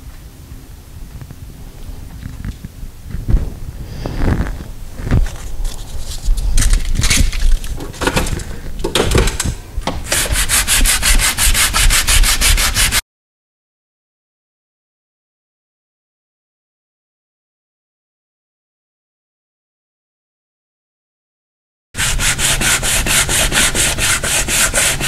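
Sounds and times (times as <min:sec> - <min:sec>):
sandpaper rubbing by hand: 0:10.1 - 0:13.0, 0:22.0 - 0:25.0.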